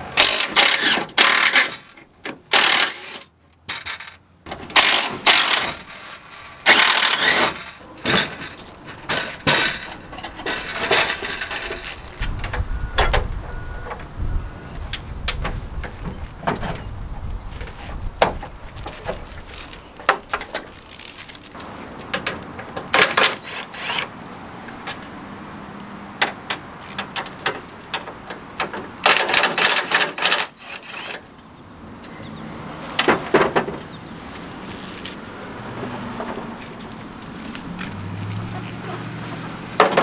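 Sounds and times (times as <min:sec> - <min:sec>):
cordless drill backing out screws: 0:02.5 - 0:04.0, 0:04.7 - 0:06.0, 0:06.7 - 0:12.0
clicks and knocks of handled screws: 0:26.2 - 0:31.2.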